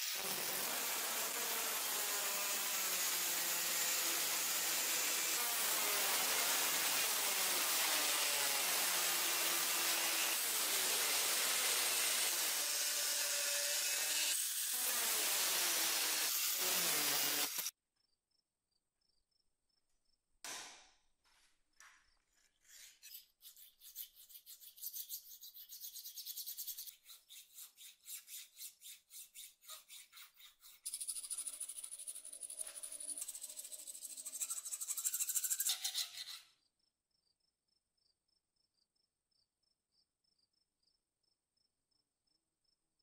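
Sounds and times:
hand file rasping on steel: 22.4 - 36.4.

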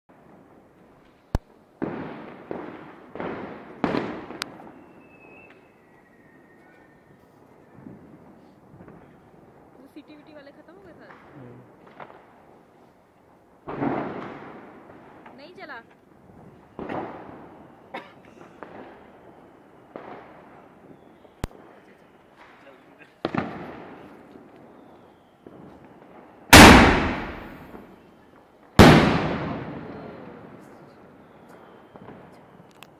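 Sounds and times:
fireworks banging: 0.1 - 6.5, 7.6 - 12.7, 13.6 - 28.0, 28.7 - 32.9
falling firework whistle: 3.9 - 8.6, 16.5 - 22.6, 23.3 - 28.2, 28.8 - 32.9.

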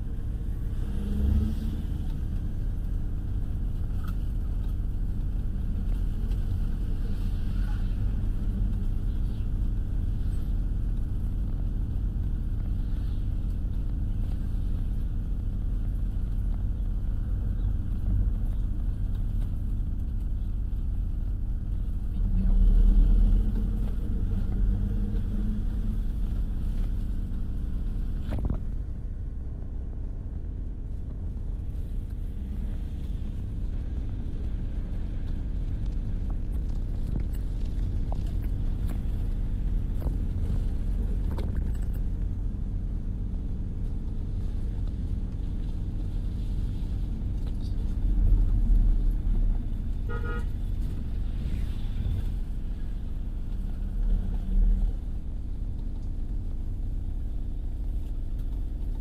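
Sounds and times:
car driving rumble: 0.0 - 59.0
vehicle horn toot: 50.1 - 50.5.

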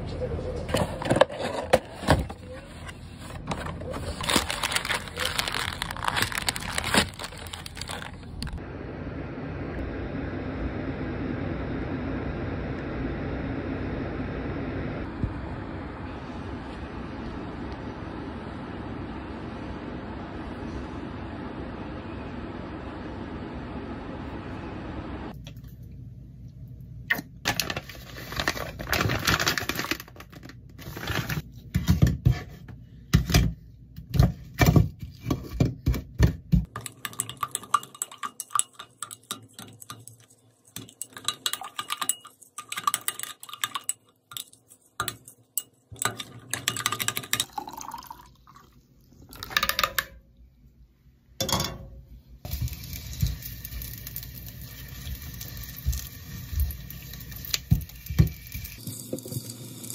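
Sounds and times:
dishes and utensils clinking: 36.6 - 47.6
liquid sounds: 36.6 - 49.9.

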